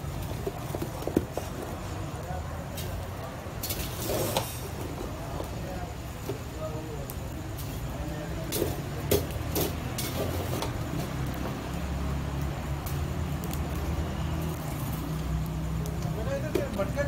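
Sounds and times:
metal tongs clinking on grill: 0:02.8 - 0:04.6, 0:08.4 - 0:10.8.

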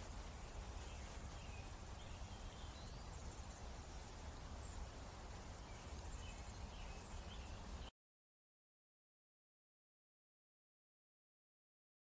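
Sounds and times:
bird chirps: 0:00.2 - 0:07.9.

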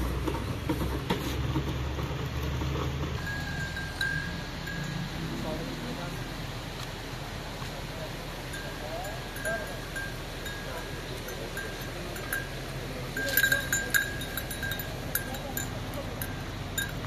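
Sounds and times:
small metal bells clinking: 0:03.2 - 0:05.7, 0:08.5 - 0:17.0.

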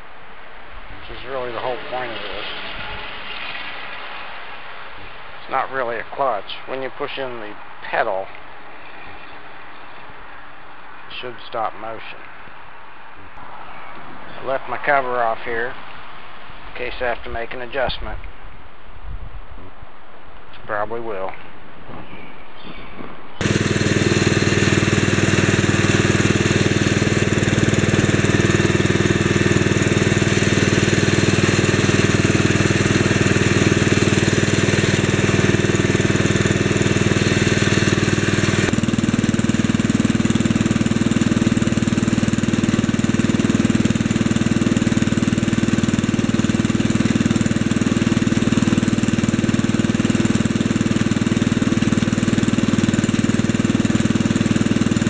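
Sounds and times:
garden tractor engine running: 0:01.0 - 0:04.0, 0:23.4 - 0:55.0.

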